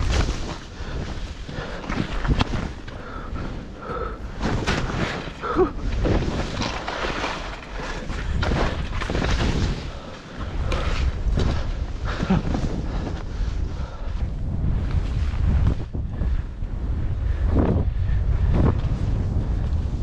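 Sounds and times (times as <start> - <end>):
wind rushing over microphone: 0.0 - 20.0
skis thumping on bumps: 3.9 - 13.6.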